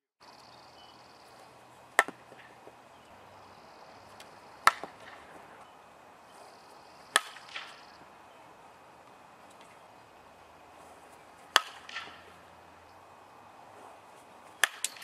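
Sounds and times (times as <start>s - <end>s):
bat hitting softball: 2.0s - 2.7s, 4.2s - 5.5s, 7.1s - 8.0s, 11.4s - 12.4s, 14.5s - 15.0s.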